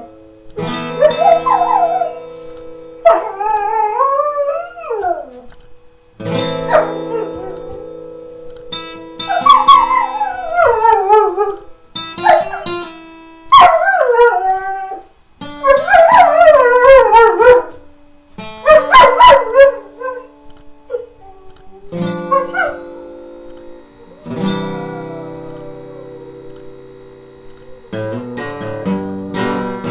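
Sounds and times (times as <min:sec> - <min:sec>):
instrumental music chords: 0:00.0 - 0:04.7, 0:05.6 - 0:29.9
dog howling: 0:01.0 - 0:02.2, 0:03.0 - 0:05.5, 0:06.7 - 0:07.7, 0:09.3 - 0:11.6, 0:12.2 - 0:12.8, 0:13.5 - 0:17.8, 0:18.7 - 0:22.8, 0:24.0 - 0:26.3.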